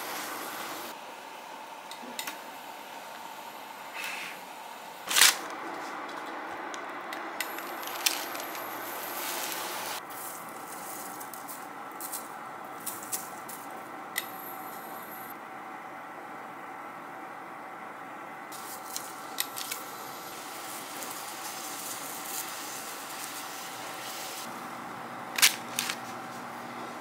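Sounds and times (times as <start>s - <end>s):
pastry sizzling in a frying pan: 7.6s - 10.8s, 18.6s - 24.6s.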